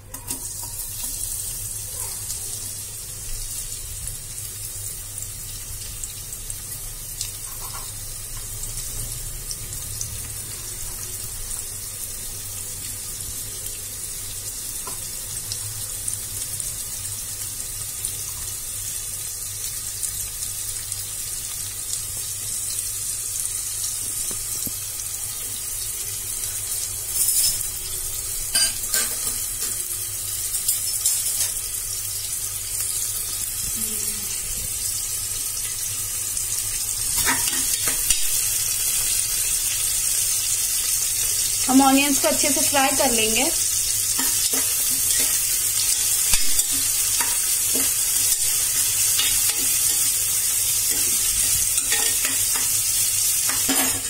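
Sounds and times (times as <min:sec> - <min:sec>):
onions sizzling in hot oil: 0:00.0 - 0:54.0.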